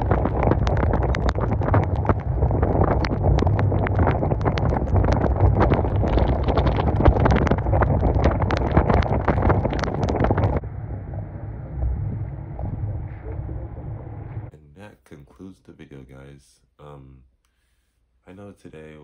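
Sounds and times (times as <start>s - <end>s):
deep rumble of road noise: 0.0s - 14.5s
wind buffeting microphone: 0.0s - 14.5s
dull hiss: 13.0s - 19.0s.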